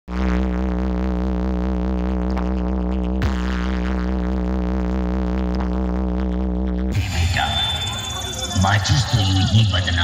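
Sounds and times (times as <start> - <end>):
heavy bass drone: 0.0 - 10.0
wavering synth tone: 2.0 - 10.0.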